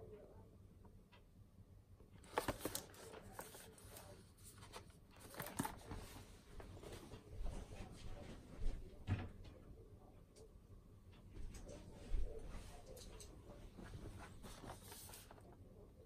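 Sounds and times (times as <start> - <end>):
cardboard box rustling: 2.2 - 3.6.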